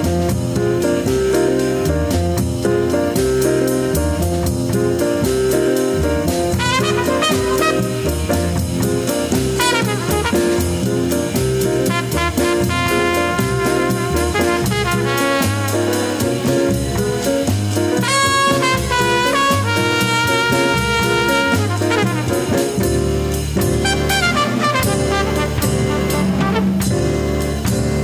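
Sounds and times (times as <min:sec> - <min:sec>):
drum kit playing a groove: 0:00.0 - 0:28.0
repeating bass line: 0:00.0 - 0:28.0
saxophone: 0:06.6 - 0:08.4
trumpet: 0:06.6 - 0:08.6, 0:09.4 - 0:11.0, 0:11.8 - 0:16.6, 0:18.0 - 0:23.0, 0:23.6 - 0:27.5.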